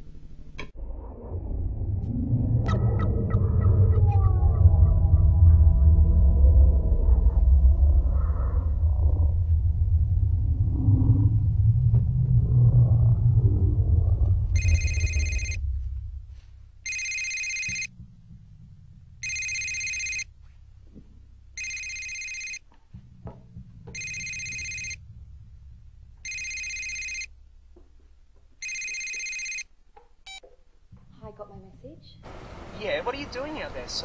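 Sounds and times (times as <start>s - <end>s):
low rumble: 0.6s - 28.6s
phone electronic ring tone: 14.6s - 15.6s, 16.8s - 17.9s, 19.2s - 20.3s, 21.6s - 22.6s, 24.0s - 25.0s, 26.2s - 27.3s, 28.6s - 29.7s.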